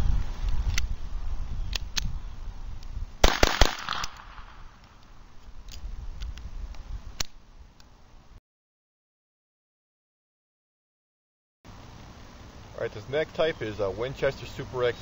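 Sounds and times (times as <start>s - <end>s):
pistol shots: 3.2s - 4.6s.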